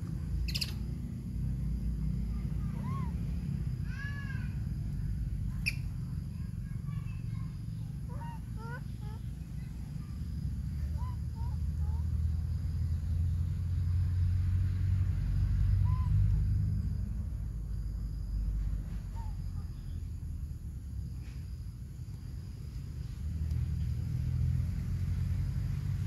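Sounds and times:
steady low rumble: 0.0s - 26.0s
high chirping animal calls: 0.4s - 0.8s, 7.7s - 9.8s, 10.8s - 12.2s.

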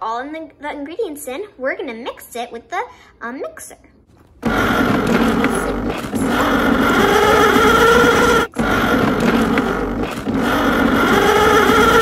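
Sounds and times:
toy mixer motor whirring: 4.4s - 12.0s.

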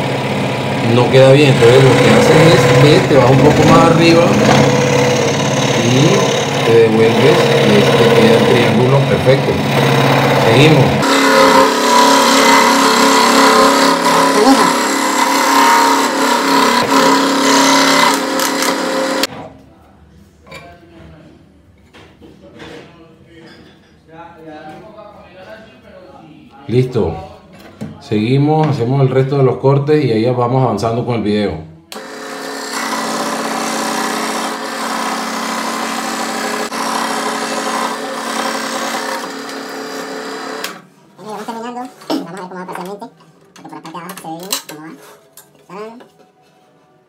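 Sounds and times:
scroll saw cutting board: 1.2s - 19.3s, 32.0s - 40.8s.

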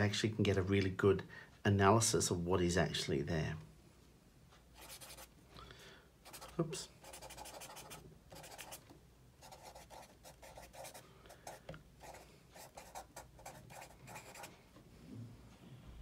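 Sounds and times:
marker scratching on paper: 4.8s - 5.3s, 6.2s - 8.8s, 9.4s - 14.5s.

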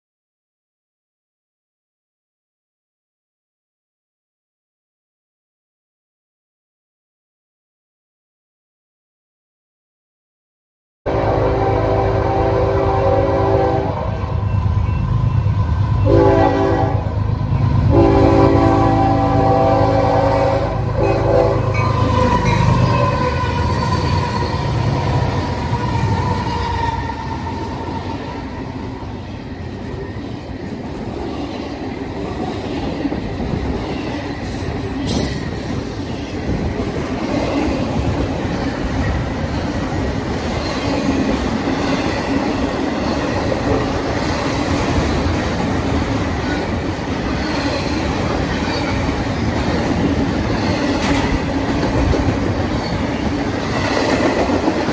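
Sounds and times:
train air horn: 11.1s - 14.2s, 16.0s - 17.1s, 17.9s - 24.7s
diesel locomotives passing: 11.1s - 54.9s
train wheels rolling on rails: 17.1s - 54.9s.

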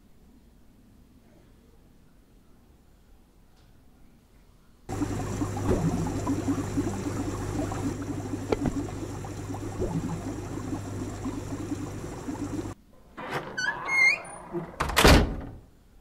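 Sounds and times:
aquarium aerator bubbling: 4.9s - 12.8s
low steady hum: 4.9s - 12.8s.

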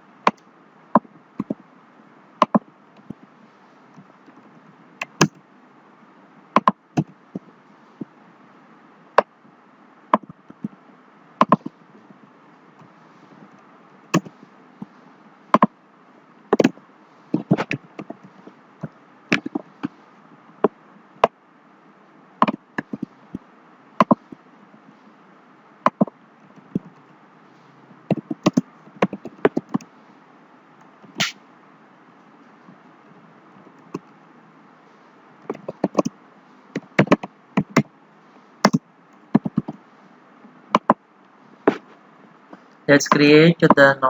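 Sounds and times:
background hiss: 0.0s - 44.0s
keyboard keys clacking: 35.5s - 36.1s.

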